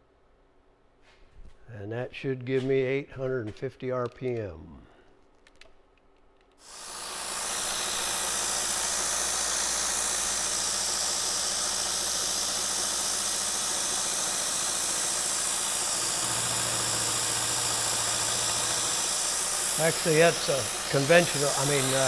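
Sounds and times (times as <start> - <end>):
milling machine spindle running: 6.7 - 22.0.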